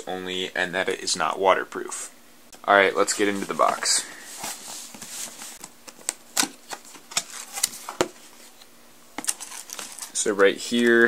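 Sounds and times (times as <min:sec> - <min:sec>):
cardboard rustling: 0:03.1 - 0:11.0.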